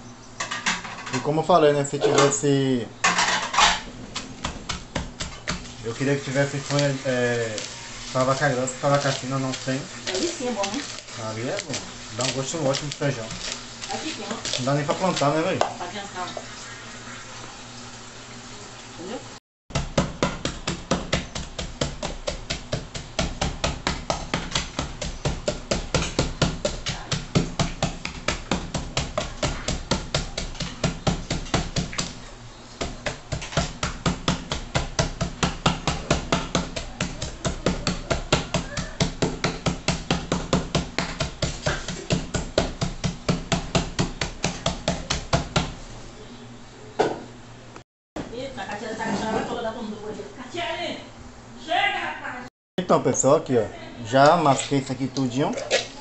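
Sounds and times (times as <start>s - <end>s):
wooden pestle pounding in metal pot: 3.1s - 11.0s, 19.7s - 32.2s, 32.8s - 45.8s.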